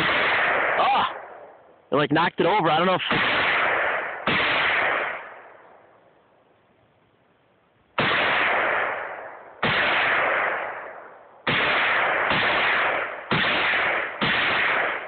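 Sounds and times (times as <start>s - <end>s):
rifle shots: 0.0s - 1.6s, 2.7s - 5.9s, 8.0s - 15.0s.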